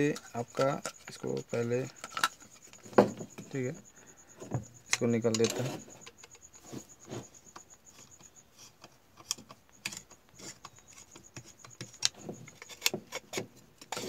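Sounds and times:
screwdriver clicks and scrapes: 4.9 - 6.6, 8.0 - 14.0.

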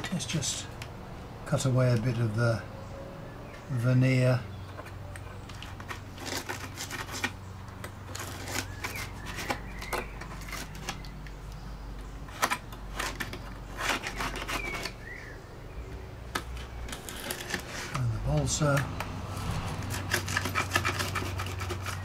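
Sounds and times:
scalpel scraping wood: 0.0 - 0.8, 4.0 - 11.4, 12.0 - 22.0.

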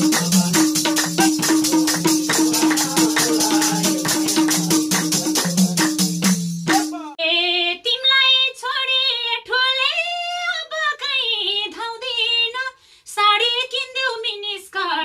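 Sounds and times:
hand drum: 0.0 - 7.1
tambourine: 0.0 - 7.1
woman singing: 7.2 - 15.0.

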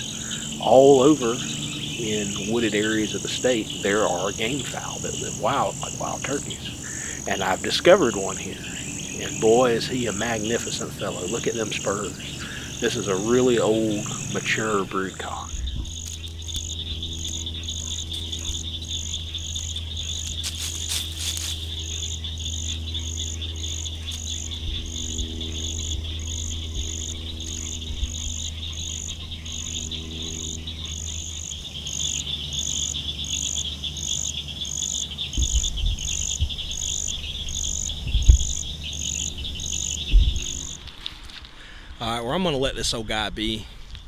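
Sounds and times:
insect high trill: 0.0 - 42.2
pulsing insect call: 0.0 - 43.0
low steady drone: 0.0 - 44.0
low thumps: 35.3 - 41.0.

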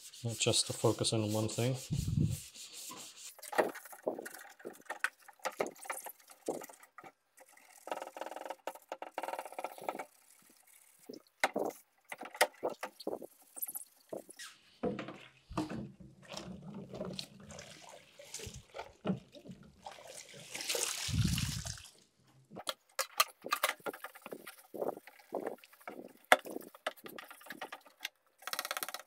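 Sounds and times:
sponge scrubbing scrapes: 0.0 - 4.8
water sloshing and splashing: 15.1 - 22.6, 23.4 - 27.8.

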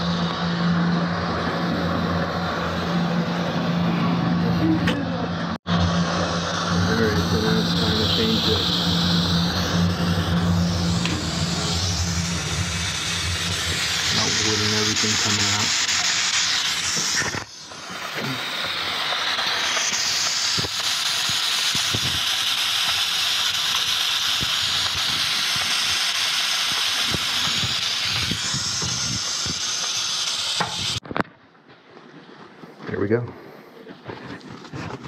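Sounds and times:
steam hissing from vent: 5.6 - 31.0.

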